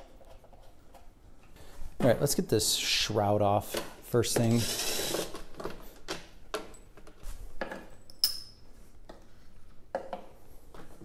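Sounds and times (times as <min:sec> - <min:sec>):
metallic clinks and knocks: 0:07.7 - 0:08.7.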